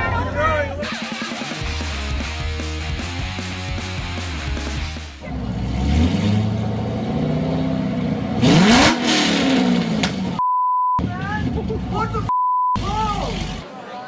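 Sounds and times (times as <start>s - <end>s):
car engine revving: 0.8s - 10.4s
censor bleep: 10.4s - 11.0s, 12.3s - 12.8s.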